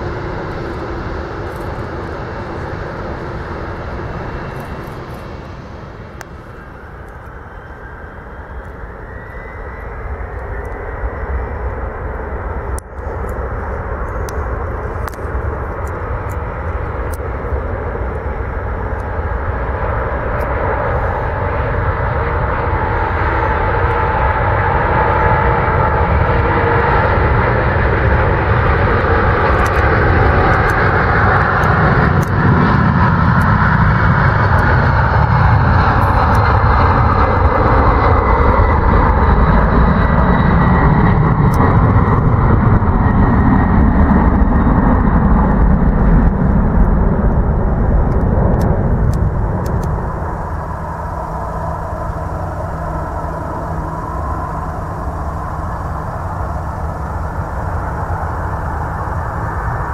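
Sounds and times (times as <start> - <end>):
jet engines at takeoff: 0.0 - 59.9
thin high whine: 49.0 - 59.9.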